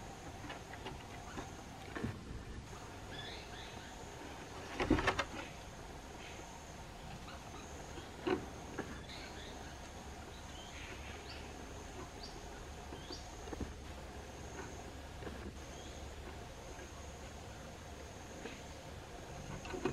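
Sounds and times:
high insect call: 2.7 - 19.9
rope swing knocks and rattles: 4.6 - 5.5.

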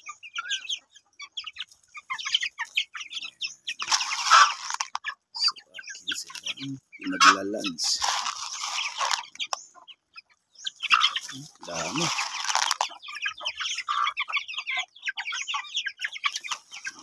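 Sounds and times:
chicks peeping and clucking: 0.0 - 17.0.

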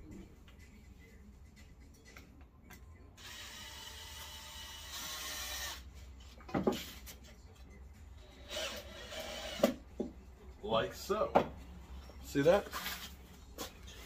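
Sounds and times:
cordless drill driving screw: 3.2 - 5.8, 8.4 - 9.7.

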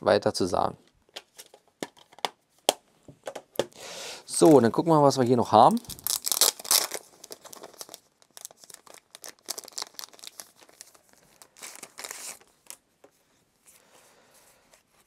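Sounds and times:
packaging crinkling and rustling: 5.6 - 13.2.

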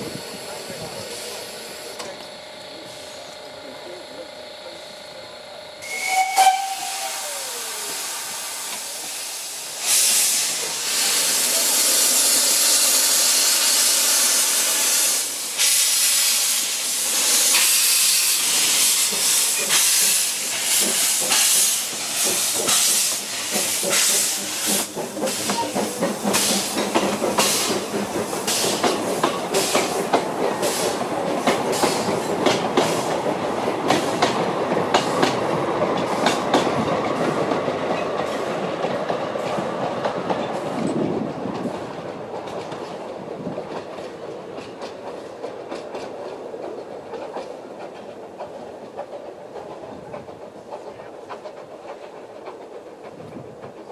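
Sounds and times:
steam hissing: 0.0 - 3.5, 5.8 - 36.6
steam locomotive exhaust chuffs: 0.0 - 40.3
steam whistle toot: 5.8 - 8.4.

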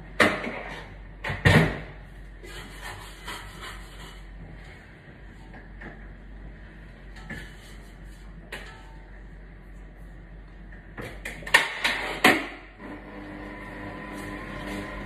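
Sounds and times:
stand mixer motor running: 12.8 - 15.0.

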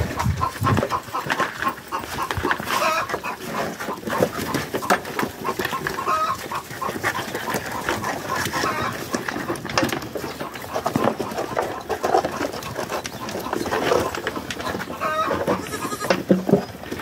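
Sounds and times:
goat bleat: 15.1 - 16.3.

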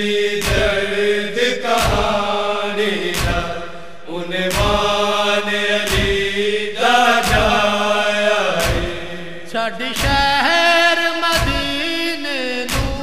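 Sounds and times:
deep drum beat: 0.4 - 1.0, 1.8 - 2.2, 3.0 - 3.8, 4.5 - 5.1, 5.8 - 6.4, 7.2 - 7.8, 8.6 - 10.5, 11.4 - 11.9.

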